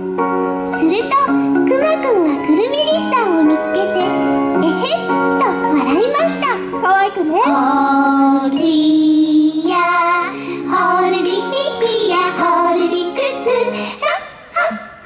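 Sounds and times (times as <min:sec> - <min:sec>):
backing music: 0:00.0 - 0:14.0.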